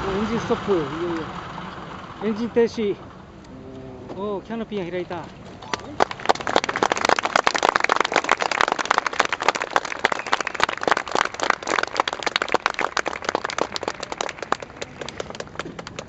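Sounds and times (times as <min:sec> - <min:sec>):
crowd applauding: 0:05.6 - 0:16.0.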